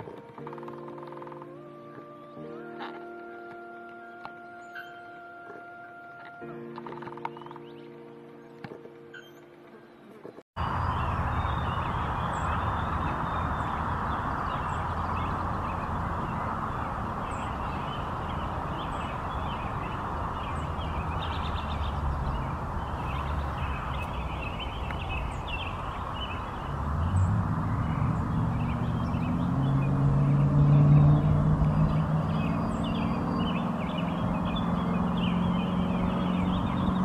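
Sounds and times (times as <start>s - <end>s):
birds calling in quick notes: 0.0s - 5.2s, 6.2s - 37.0s
low hum: 10.6s - 37.0s
steady rumbling background: 10.6s - 37.0s.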